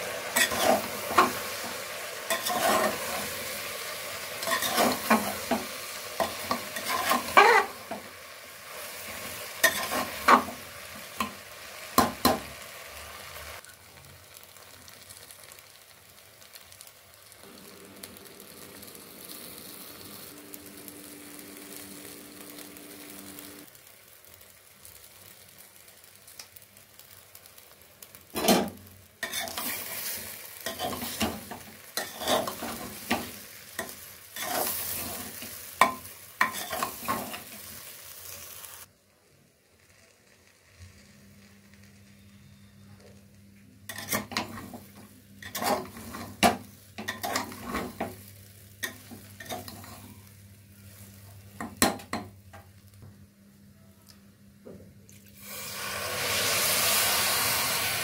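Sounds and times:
low frying sizzle: 0.0s - 58.0s
metal spoon scraping a pot: 0.4s - 1.3s, 2.3s - 3.2s, 4.4s - 5.3s, 6.2s - 7.8s, 29.2s - 29.9s, 32.0s - 32.8s, 43.9s - 44.6s, 45.4s - 46.4s.

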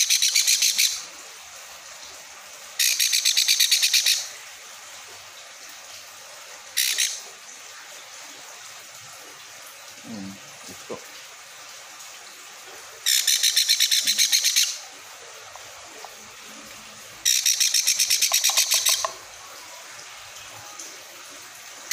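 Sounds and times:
parrot chick chirping: 17.3s - 19.2s.

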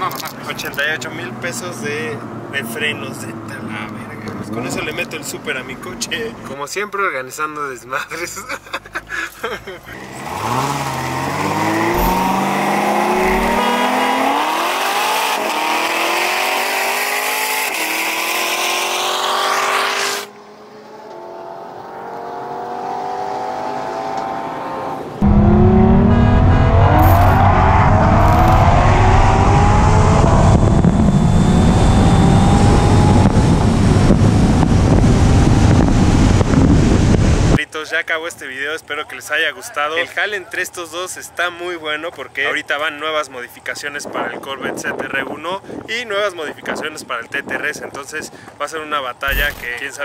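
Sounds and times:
sports car engines at full throttle: 0.0s - 6.5s, 8.6s - 37.6s, 49.2s - 50.0s
wind buffeting microphone: 29.4s - 37.6s.

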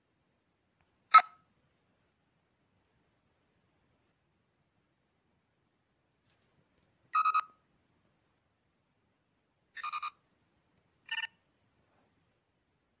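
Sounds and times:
computer chirps: 11.1s - 11.3s.

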